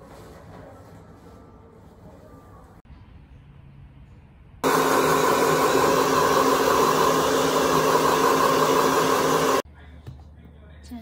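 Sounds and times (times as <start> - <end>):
hair dryer blowing: 4.6 - 9.6.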